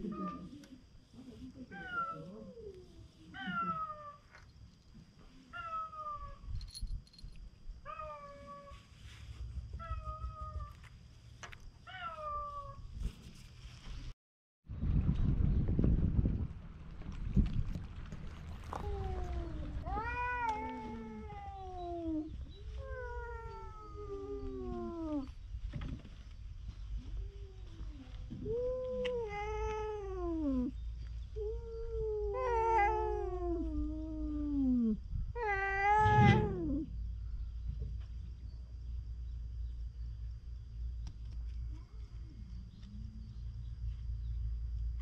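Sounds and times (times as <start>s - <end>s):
cats meowing: 18.7s - 25.3s, 28.3s - 36.9s.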